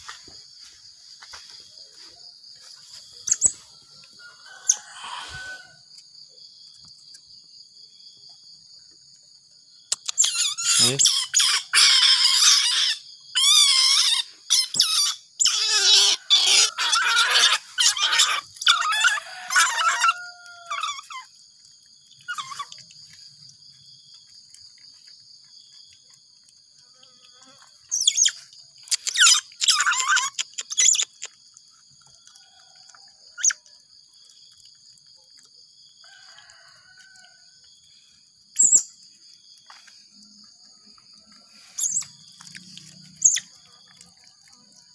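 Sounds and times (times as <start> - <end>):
baby otter squealing: 10.1 - 21.3, 22.3 - 22.8, 27.9 - 31.2.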